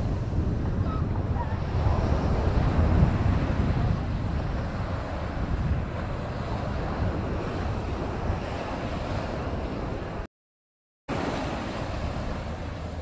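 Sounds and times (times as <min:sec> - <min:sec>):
small waves washing on beach: 0:00.0 - 0:10.3, 0:11.1 - 0:13.0
wind buffeting microphone: 0:00.0 - 0:10.3.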